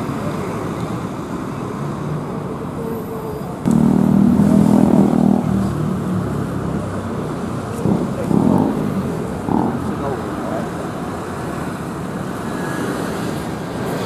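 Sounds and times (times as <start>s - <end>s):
diesel bus engines running: 0.0s - 14.0s
bus pulling away: 3.7s - 11.9s.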